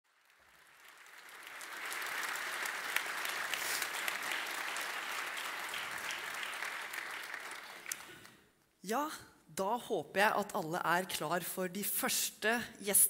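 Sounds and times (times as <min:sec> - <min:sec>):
audience applauding: 0:00.1 - 0:08.4.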